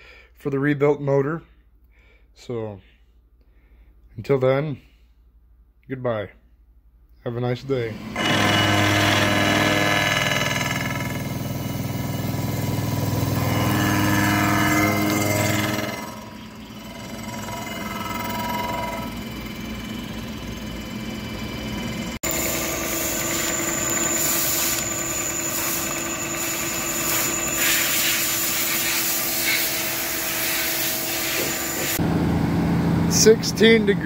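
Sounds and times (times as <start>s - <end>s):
metal lathe whining: 7.9s - 32.0s
milling machine cutting metal: 7.9s - 32.0s
low vehicle engine: 10.8s - 27.6s, 32.0s - 34.0s.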